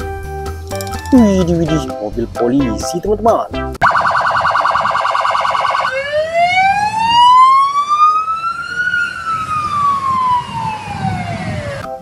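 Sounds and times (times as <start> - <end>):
police siren yelping and wailing: 3.8 - 11.9.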